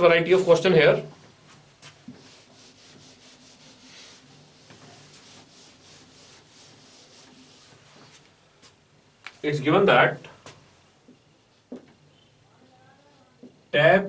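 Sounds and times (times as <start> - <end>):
eraser wiping a whiteboard: 1.5 - 8.3.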